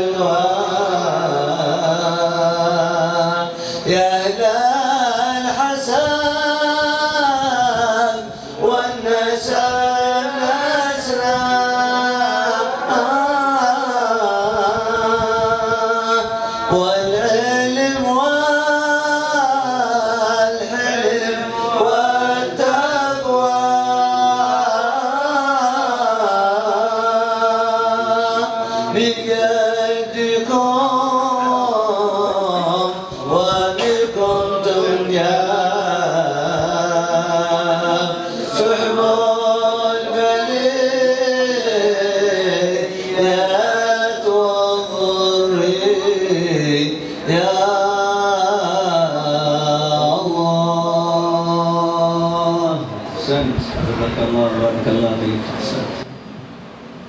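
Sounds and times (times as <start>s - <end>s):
man singing unaccompanied: 0.0s - 56.0s.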